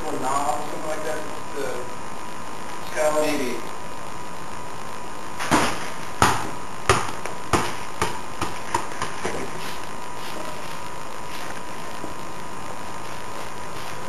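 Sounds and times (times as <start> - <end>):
ball bouncing on hard floor: 5.4 - 9.6.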